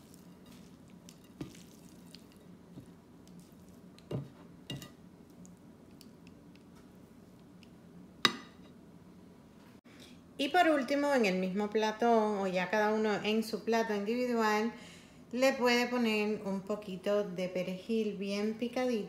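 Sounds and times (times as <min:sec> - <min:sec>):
wet squishing of pasta: 0:00.0 - 0:04.1
faint steady hum: 0:00.0 - 0:19.0.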